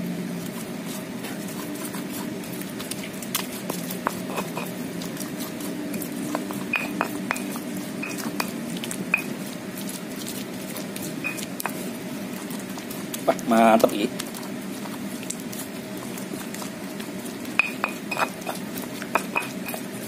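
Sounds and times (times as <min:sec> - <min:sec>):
steady low hum: 0:00.0 - 0:20.0
stone pestle grinding in mortar: 0:00.4 - 0:09.4, 0:10.2 - 0:20.0.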